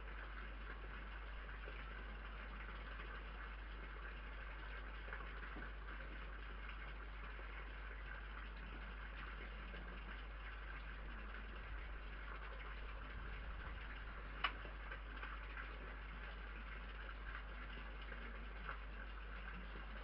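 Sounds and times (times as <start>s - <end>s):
microphone hiss and hum: 0.0s - 20.0s.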